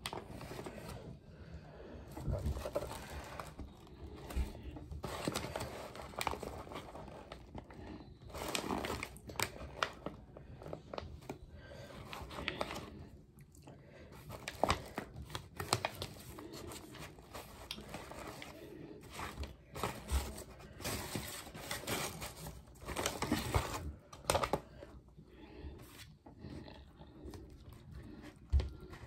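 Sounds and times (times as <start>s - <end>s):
paper wrapper crinkling and rustling: 0.0s - 1.1s, 2.1s - 13.0s, 14.1s - 24.9s.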